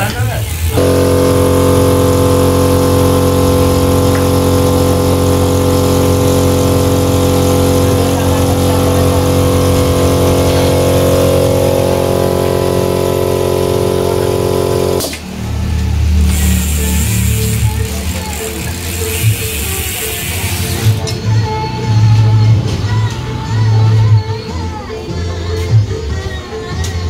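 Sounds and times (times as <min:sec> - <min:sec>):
engine idling with low pulsing: 0:00.7 - 0:15.1.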